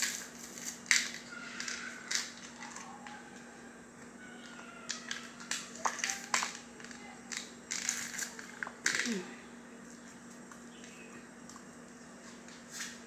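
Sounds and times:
steady low hum: 0:00.0 - 0:13.0
garlic crunching clicks: 0:04.0 - 0:09.2.

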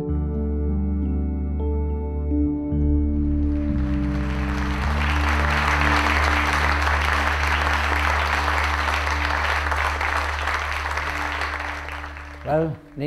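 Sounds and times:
soft ambient music: 0:00.0 - 0:13.0
audience applauding: 0:03.4 - 0:13.0.

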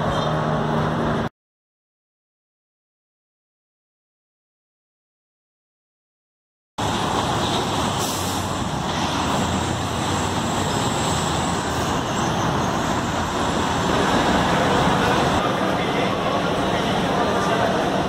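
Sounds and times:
cars passing: 0:00.0 - 0:01.3, 0:06.8 - 0:18.0
truck passing: 0:00.0 - 0:01.3, 0:06.8 - 0:18.0.

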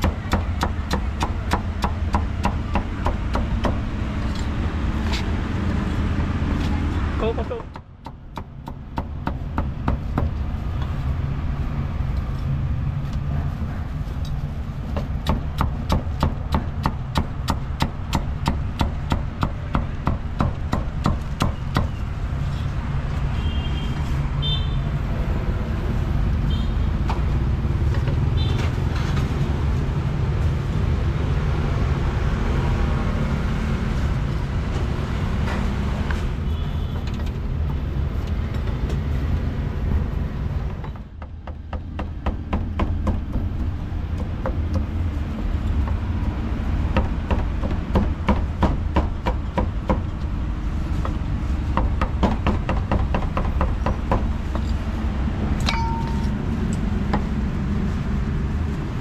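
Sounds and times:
street traffic rumble: 0:00.0 - 0:59.0
cleaver chopping on wooden block: 0:14.9 - 0:21.9.

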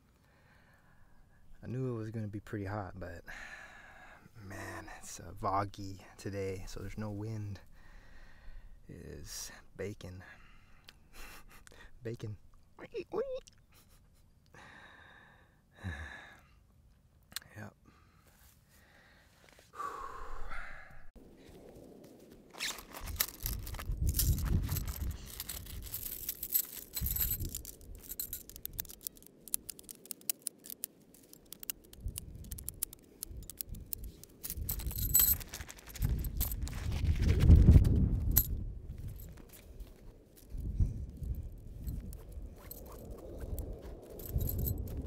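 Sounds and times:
sigh-like vocal sound: 0:19.8 - 0:21.1
metal poles clicking and scraping: 0:22.6 - 0:36.8.

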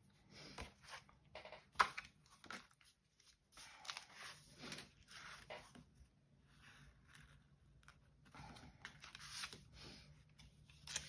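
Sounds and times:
paper pages rustling: 0:10.3 - 0:11.0.

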